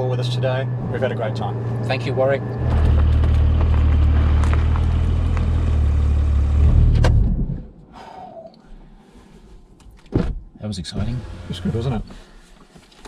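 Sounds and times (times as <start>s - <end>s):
car engine and tyres droning: 0.0s - 7.9s, 10.6s - 13.0s
quiet cabin hum: 0.0s - 13.0s.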